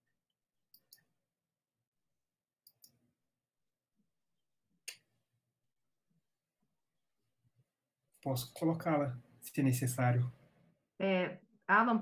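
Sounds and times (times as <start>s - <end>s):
computer mouse clicks: 0.7s - 1.1s, 2.6s - 3.0s.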